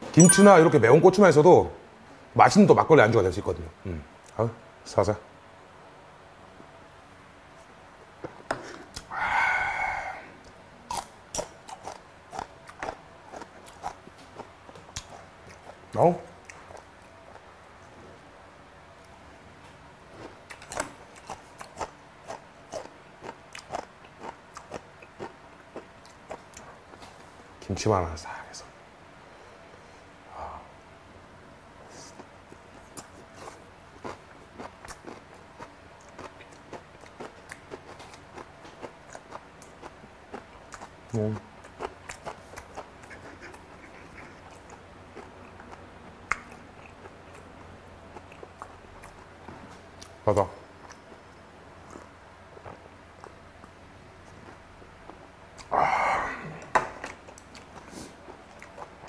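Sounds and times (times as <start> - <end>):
crunchy wet chewing: 10.4 - 17.9, 20.0 - 27.0, 31.9 - 55.7, 56.6 - 59.0
wet mouth clicks and smacks: 46.3 - 46.6.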